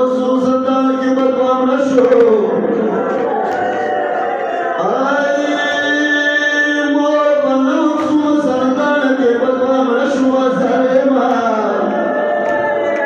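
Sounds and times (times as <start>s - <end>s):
person chanting a lament: 4.7s - 13.0s.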